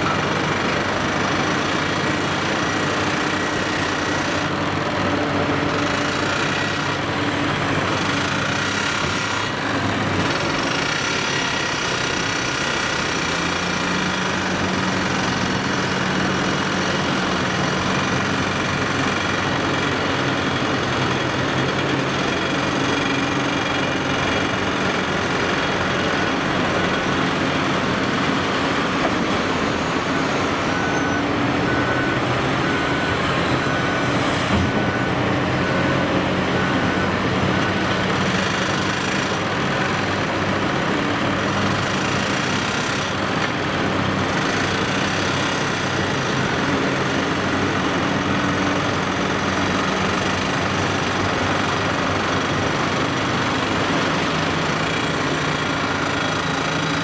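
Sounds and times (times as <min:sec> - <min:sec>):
excavator engine and hydraulics: 0:00.0 - 0:57.0
repeating beep: 0:29.6 - 0:34.2.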